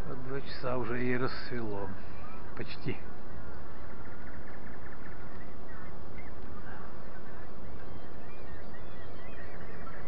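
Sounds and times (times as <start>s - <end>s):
faint steady hum: 0.0s - 10.0s
short bird calls: 0.0s - 10.0s
waterfowl honking: 3.2s - 10.0s.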